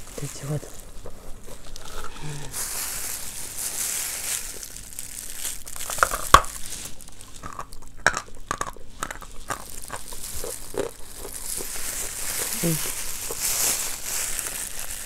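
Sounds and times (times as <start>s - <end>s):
chalk crunching in mouth: 0.0s - 15.0s.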